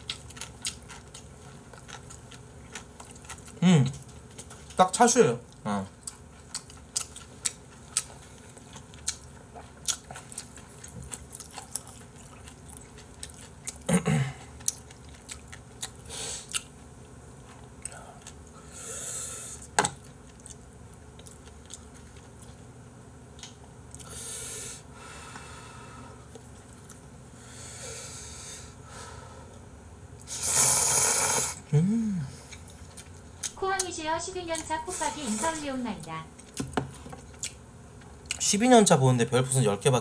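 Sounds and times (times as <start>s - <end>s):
chewing with wet clicks: 0.0s - 16.8s, 17.7s - 18.5s, 19.9s - 22.6s, 23.3s - 24.1s, 26.3s - 27.1s, 32.5s - 33.9s, 36.4s - 38.5s
slurping noodles: 30.3s - 31.6s.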